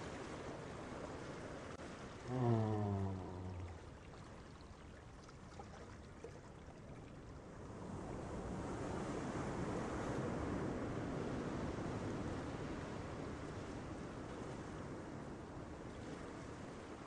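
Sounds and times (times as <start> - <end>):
ocean waves washing in: 0.0 - 4.0.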